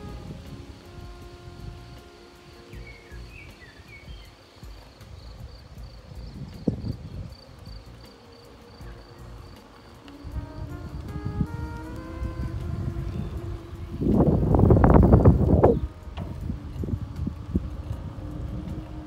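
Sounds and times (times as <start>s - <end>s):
insect trilling: 0.1s - 19.0s
bird chirps: 2.4s - 5.5s
low rumble: 8.8s - 19.0s.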